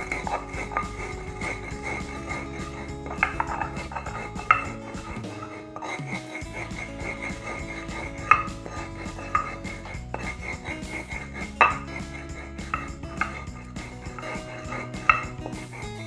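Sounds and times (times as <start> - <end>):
stone clacking on stone: 0.0 - 15.8
background music: 0.0 - 16.0
stone pestle grinding in mortar: 0.0 - 16.0.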